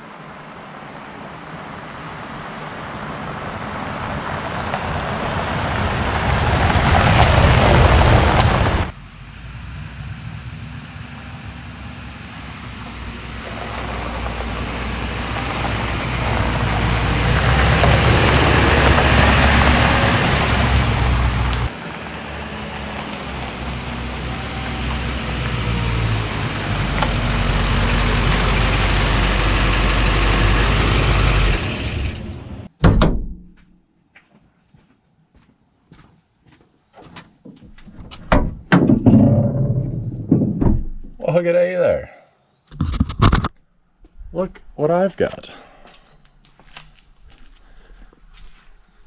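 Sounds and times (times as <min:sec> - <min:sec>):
diesel truck engine running: 0:03.0 - 0:32.7
tyres on gravel: 0:12.8 - 0:21.7, 0:44.9 - 0:49.0
sharp thump: 0:32.8 - 0:33.8.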